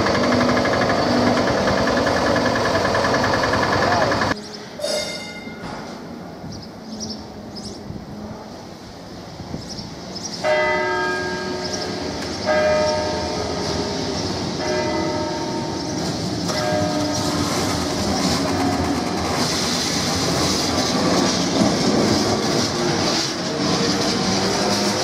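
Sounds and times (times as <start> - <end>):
tram bell gong ringing: 0.0 - 6.0, 10.4 - 19.1
tram wheels grinding on rails: 0.0 - 25.0.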